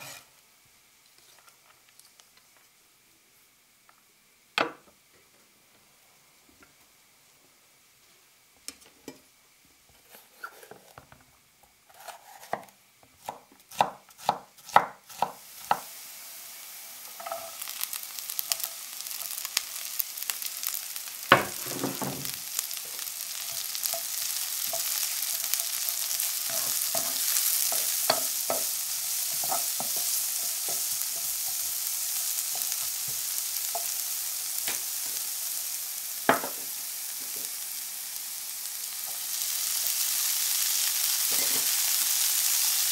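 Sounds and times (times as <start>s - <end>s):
vegetables sizzling in a frying pan: 0.0s - 42.9s
knife chopping on wooden board: 13.2s - 15.8s.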